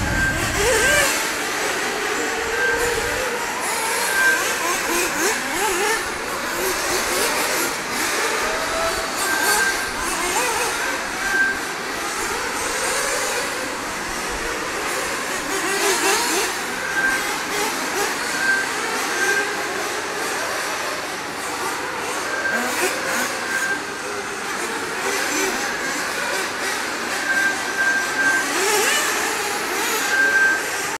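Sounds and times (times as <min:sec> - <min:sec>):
short high beeps: 0:00.0 - 0:01.1
rc car engines revving: 0:00.0 - 0:30.9.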